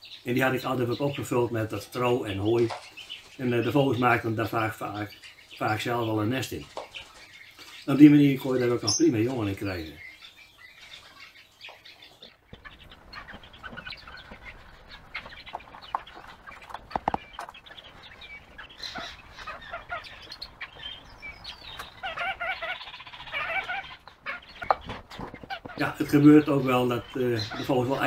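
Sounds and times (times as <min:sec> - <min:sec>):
birds peeping: 0:00.0 - 0:28.0
quick clucking calls: 0:10.8 - 0:28.0
sharp taps: 0:15.5 - 0:17.6.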